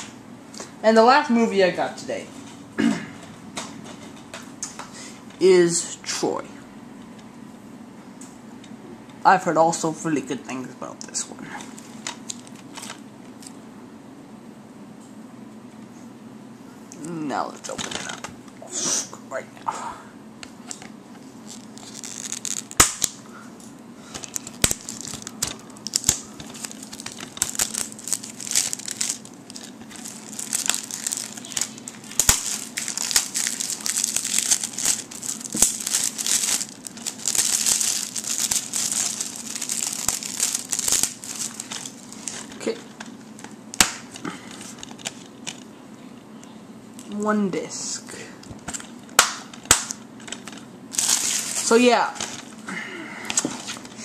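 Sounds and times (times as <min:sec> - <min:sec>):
shrink-wrap crinkling and tearing: 0:11.6 - 0:13.5, 0:21.4 - 0:23.2, 0:24.1 - 0:43.2, 0:49.7 - 0:52.5.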